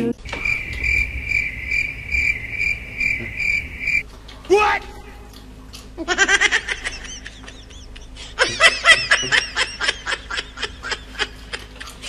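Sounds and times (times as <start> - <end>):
high-pitched laughter: 6.0 - 11.9.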